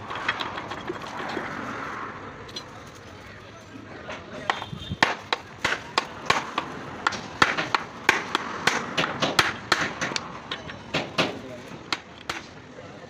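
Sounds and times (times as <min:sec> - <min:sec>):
hand tool tapping steel: 0:04.4 - 0:12.5.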